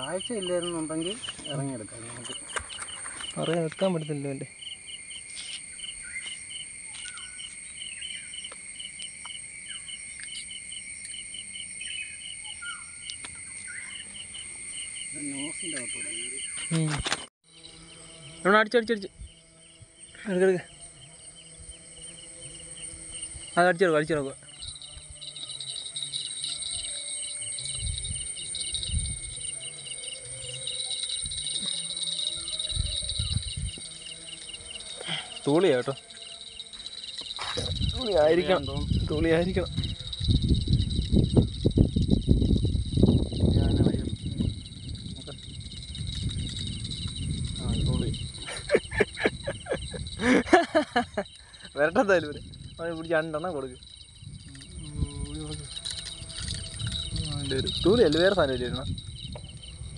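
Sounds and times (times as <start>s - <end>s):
crickets and insects chirping: 0.0s - 59.9s
bird calls: 2.2s - 3.6s, 4.6s - 8.6s, 11.4s - 16.8s.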